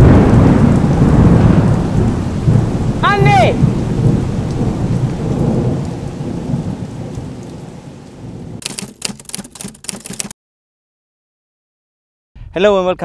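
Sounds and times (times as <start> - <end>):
thunder rumbling: 0.0 - 8.6
heavy rain: 0.0 - 9.2
sharp irregular clicks and taps: 8.6 - 10.3.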